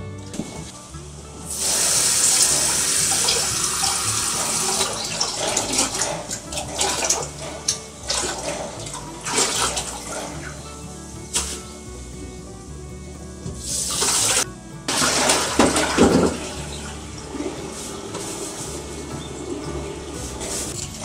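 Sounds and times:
loud rushing hiss: 1.5 - 5.0.

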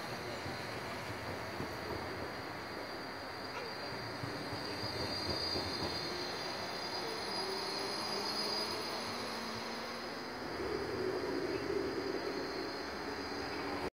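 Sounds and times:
tram rolling past: 0.0 - 13.9
high-pitched wheel squeal: 3.6 - 10.3.

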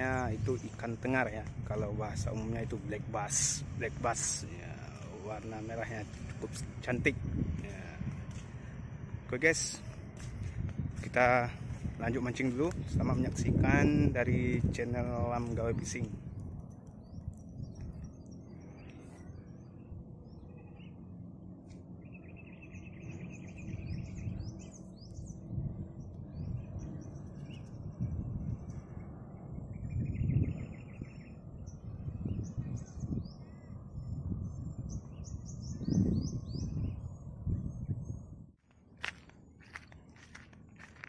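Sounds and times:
birds trilling: 0.0 - 41.0
low uneven rumble: 0.0 - 41.0
small birds calling: 14.6 - 41.0.

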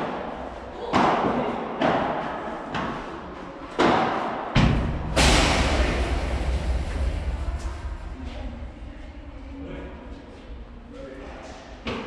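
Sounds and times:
low rumble and rustle: 4.6 - 12.0.

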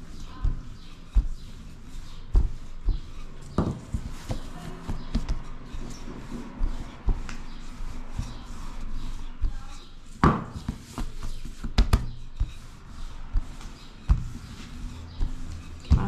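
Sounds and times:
rolling pin knocking on table: 10.2 - 10.8.

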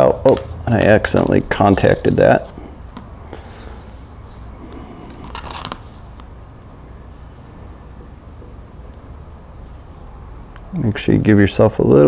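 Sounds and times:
high-pitched background hiss: 0.0 - 12.0
crackling rustle: 1.0 - 9.0
tape peeling: 1.5 - 6.3.

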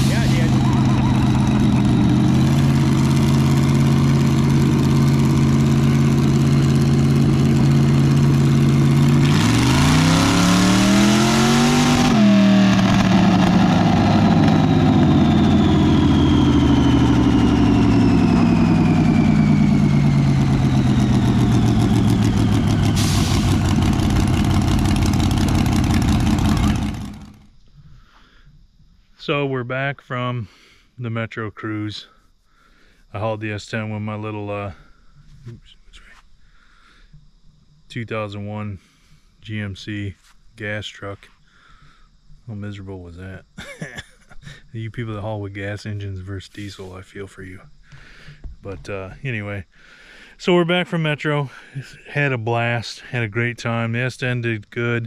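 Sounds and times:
engine revving on dyno: 0.0 - 27.5.

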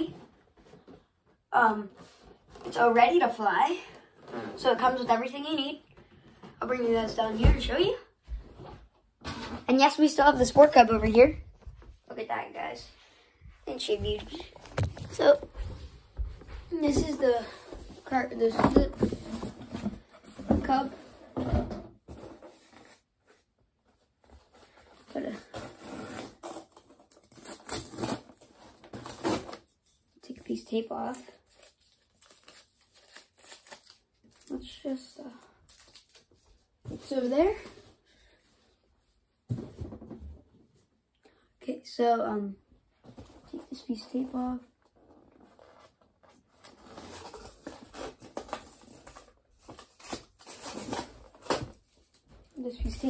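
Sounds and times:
cardboard and foam rustling: 13.7 - 40.5, 43.0 - 53.0.

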